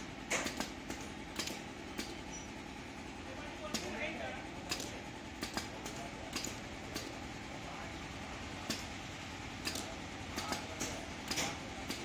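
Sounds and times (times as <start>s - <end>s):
pneumatic clicks: 0.0s - 2.7s, 3.6s - 4.0s, 4.6s - 7.2s, 8.6s - 9.0s, 9.6s - 12.0s
machine humming: 0.0s - 12.0s.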